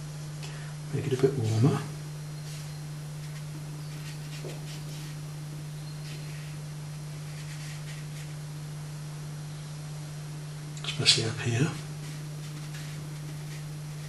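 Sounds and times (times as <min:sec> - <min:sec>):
steady low hum: 0:00.0 - 0:14.0
paintbrush swishes on paper: 0:02.5 - 0:05.2, 0:11.8 - 0:14.0.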